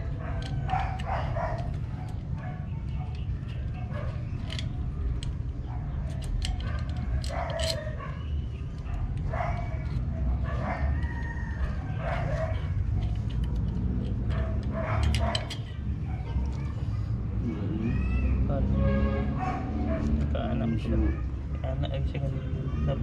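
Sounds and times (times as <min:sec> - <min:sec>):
wrench clicking on metal: 0:06.1 - 0:07.9
rooster crowing: 0:10.7 - 0:12.4.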